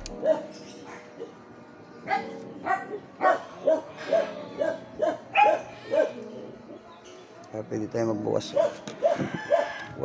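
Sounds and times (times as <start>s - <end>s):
dog barking: 0.2s - 1.4s, 2.1s - 6.2s, 8.5s - 9.8s.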